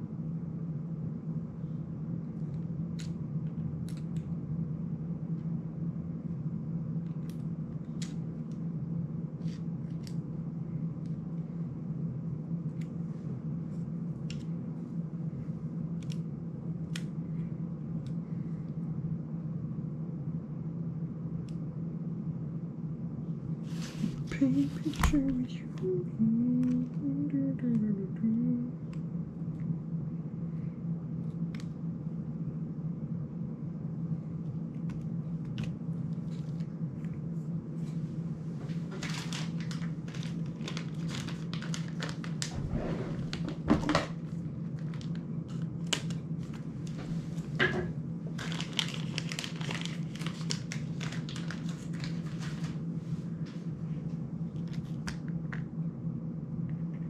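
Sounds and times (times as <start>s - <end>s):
steady low hum: 0.0s - 57.0s
plastic crinkling and crackling: 38.9s - 42.6s, 44.6s - 47.0s, 48.3s - 52.8s.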